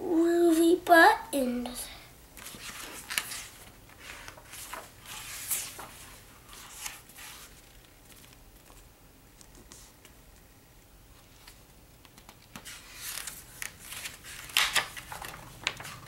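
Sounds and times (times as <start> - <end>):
book pages rustling: 2.4 - 10.2, 11.2 - 16.0.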